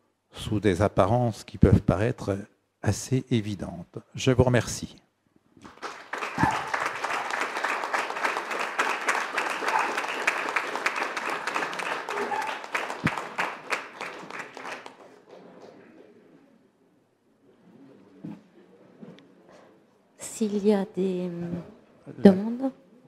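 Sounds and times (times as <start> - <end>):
audience applauding: 5.6 - 15.6.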